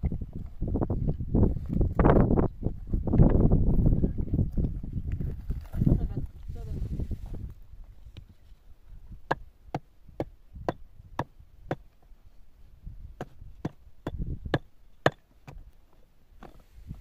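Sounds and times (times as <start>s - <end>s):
tool striking hard material: 13.2s - 15.6s.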